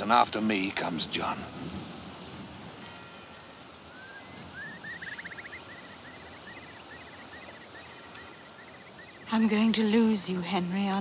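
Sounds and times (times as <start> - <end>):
faint outdoor hiss: 0.0 - 11.0
bird chirping and trilling: 3.8 - 10.7.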